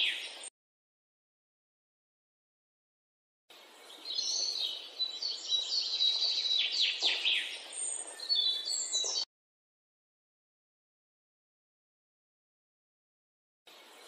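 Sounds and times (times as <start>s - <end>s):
birds chirping: 0.0s - 0.5s, 3.5s - 9.3s, 13.7s - 14.0s.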